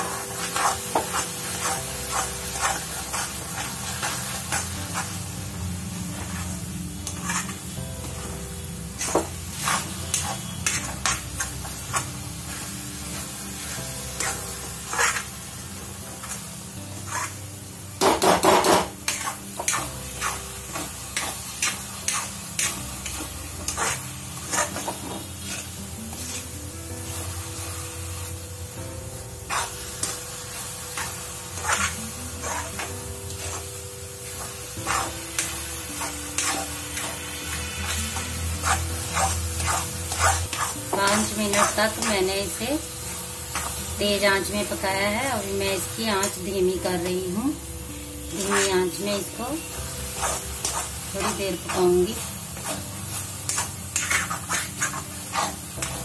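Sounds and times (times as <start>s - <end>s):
syrup sizzling: 0.0s - 56.0s
spatula scraping metal pan: 6.2s - 7.6s, 9.0s - 11.3s, 14.2s - 15.3s, 17.0s - 17.4s, 18.5s - 26.6s, 31.0s - 33.7s, 34.3s - 42.2s, 48.3s - 49.0s, 50.0s - 51.9s, 52.6s - 56.0s.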